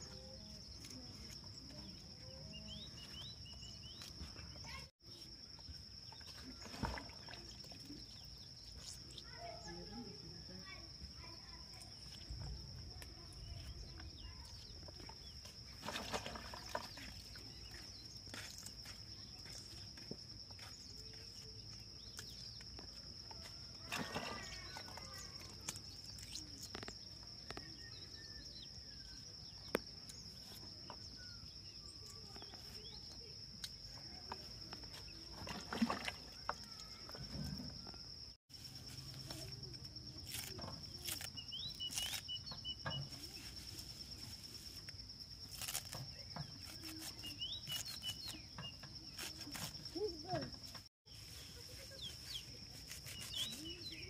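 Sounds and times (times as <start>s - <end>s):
bird chirps: 0.0s - 10.1s, 16.6s - 33.3s, 51.1s - 54.0s
leafy greens rustling and snapping: 23.8s - 27.7s, 39.0s - 50.5s, 51.3s - 54.0s.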